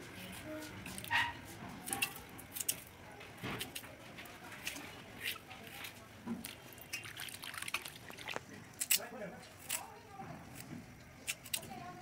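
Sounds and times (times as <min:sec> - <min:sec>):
hands stirring in bowl of water: 0:04.6 - 0:09.0.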